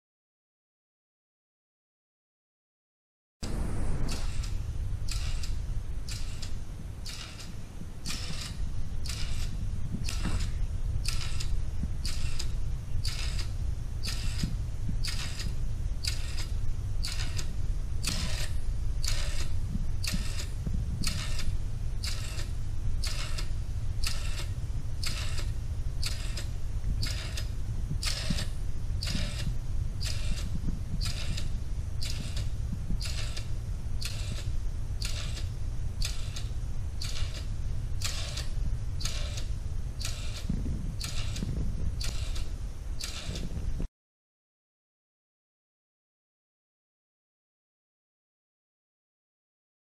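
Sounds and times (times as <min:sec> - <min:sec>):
steady low hum: 0:03.4 - 0:43.9
clock ticking: 0:04.0 - 0:43.4.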